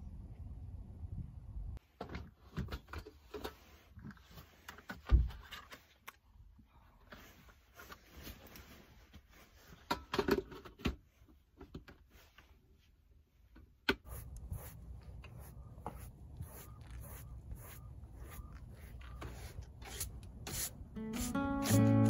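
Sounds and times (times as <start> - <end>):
faint low rumble: 0.0 - 1.8.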